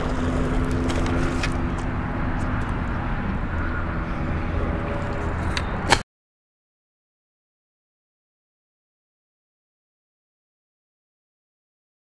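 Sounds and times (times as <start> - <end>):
distant engine drone: 0.0 - 6.0.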